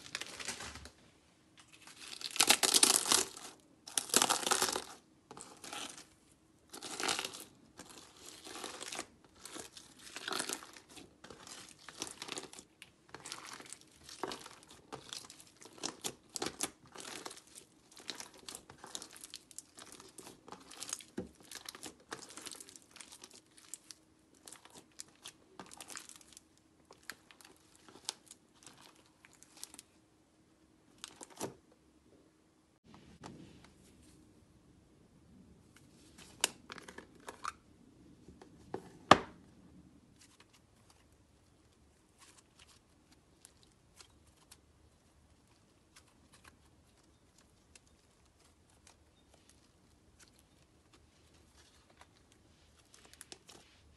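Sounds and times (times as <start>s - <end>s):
chips crunching in slime: 1.8s - 6.1s, 6.7s - 29.8s.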